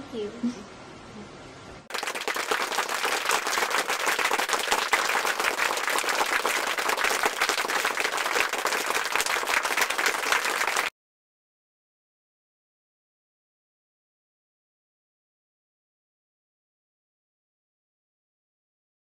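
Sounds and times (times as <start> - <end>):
crowd applause: 1.9 - 10.9.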